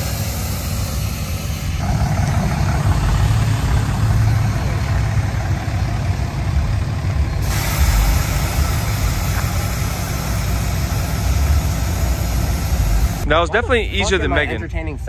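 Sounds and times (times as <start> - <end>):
truck engine rumbling: 0.0 - 15.0
wide hiss: 7.4 - 13.3.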